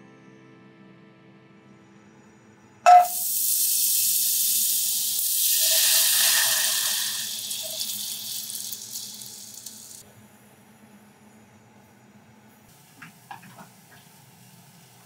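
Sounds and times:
ringing knock: 0:02.9 - 0:03.1
butter sizzling in a pot: 0:02.9 - 0:10.0.

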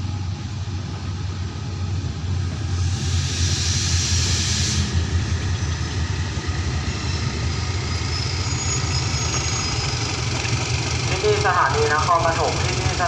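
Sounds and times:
locomotive engine droning: 0:00.0 - 0:13.0
hiss: 0:02.7 - 0:05.1.

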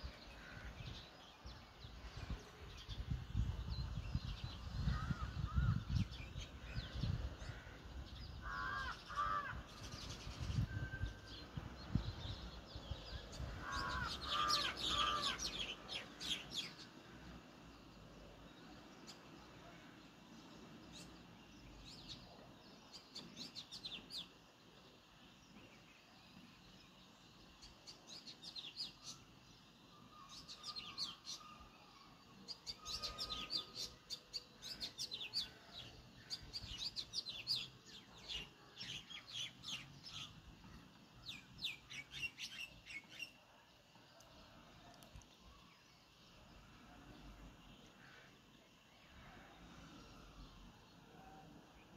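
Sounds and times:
sparrows chirping: 0:11.3 - 0:17.0, 0:25.4 - 0:43.4.

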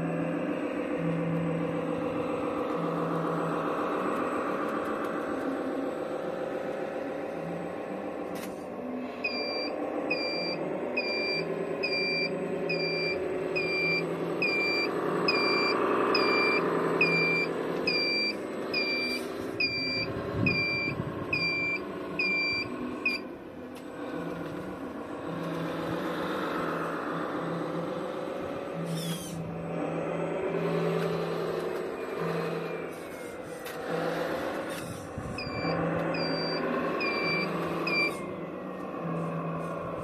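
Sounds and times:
simulated diesel engine running: 0:00.0 - 0:40.0
reversing beeper: 0:08.9 - 0:23.3, 0:26.5 - 0:40.0.

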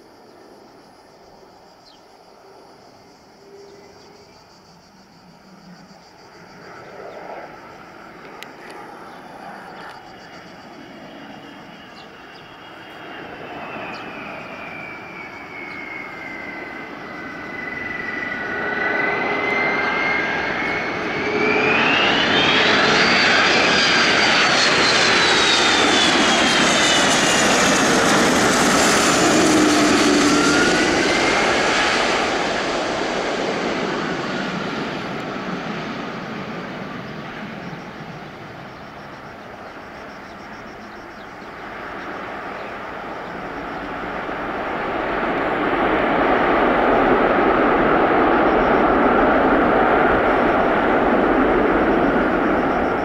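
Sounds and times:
jet engine whine: 0:00.0 - 0:53.0.

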